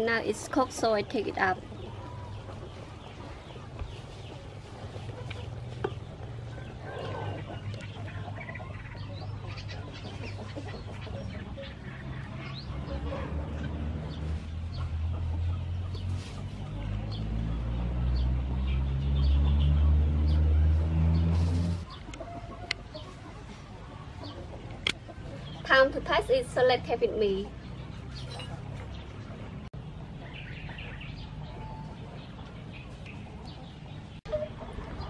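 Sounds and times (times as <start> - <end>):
chickens clucking: 0.0 - 18.8, 19.7 - 35.0.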